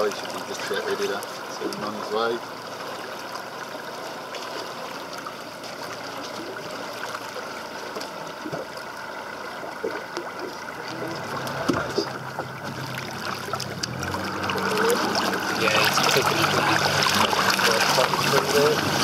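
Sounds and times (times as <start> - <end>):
sea water rushing along boat: 0.0 - 19.0
low hum: 5.8 - 19.0.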